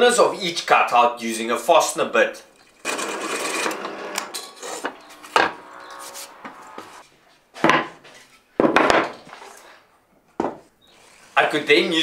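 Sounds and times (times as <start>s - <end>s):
drill press boring into wood: 2.6s - 5.5s.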